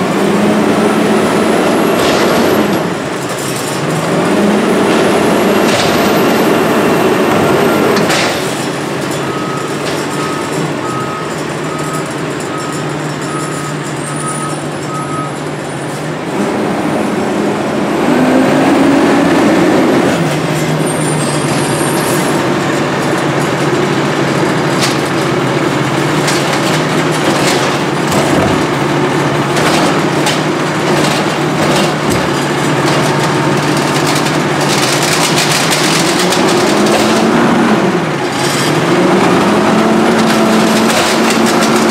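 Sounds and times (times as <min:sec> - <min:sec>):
garbage truck diesel engine: 0:00.0 - 0:41.9
reversing beeper: 0:09.2 - 0:15.9.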